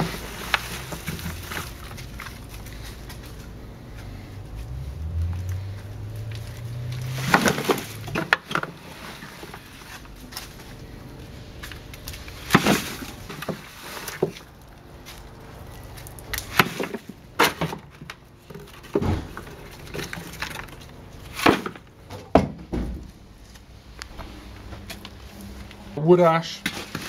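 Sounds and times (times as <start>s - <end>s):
metal shovel scraping plastic tub: 0.0s - 3.2s, 6.5s - 10.7s, 12.1s - 15.2s, 26.6s - 27.0s.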